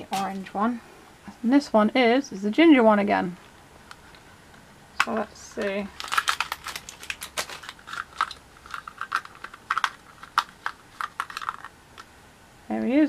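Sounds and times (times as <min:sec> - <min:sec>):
plastic clicks and rattles: 0:05.0 - 0:12.1.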